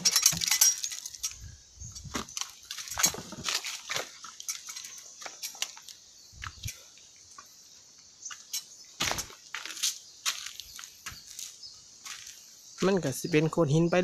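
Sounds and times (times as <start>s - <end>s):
footsteps on rocks and leaves: 0.5s - 6.7s, 8.3s - 13.1s.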